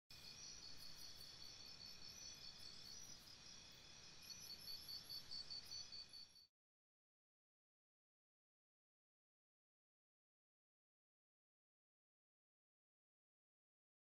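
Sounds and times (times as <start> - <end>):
insects chirping: 0.1 - 6.5.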